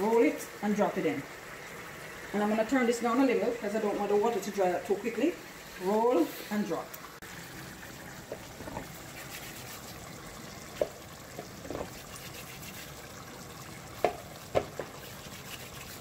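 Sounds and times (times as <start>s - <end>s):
simmering liquid bubbling: 7.0s - 16.0s.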